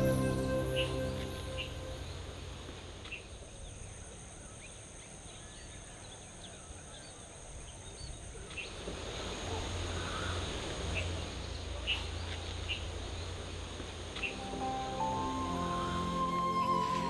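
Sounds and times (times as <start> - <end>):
high-pitched insect drone: 0.0 - 2.6.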